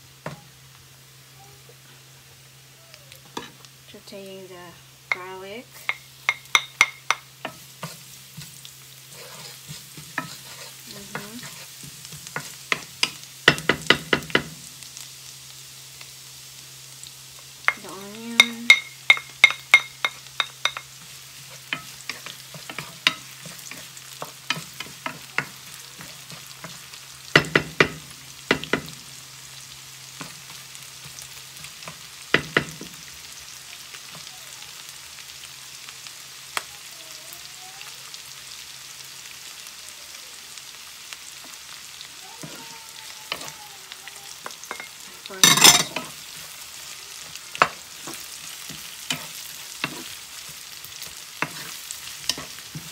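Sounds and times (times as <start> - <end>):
garlic and onion sizzling in fat: 0.0 - 52.9
wooden spoon clacking against pan: 5.1 - 8.0, 18.4 - 20.9.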